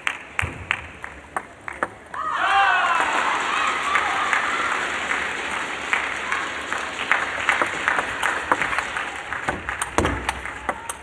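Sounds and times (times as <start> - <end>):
crowd applauding: 0.0 - 11.0
cheering shout: 2.1 - 7.1, 10.3 - 11.0.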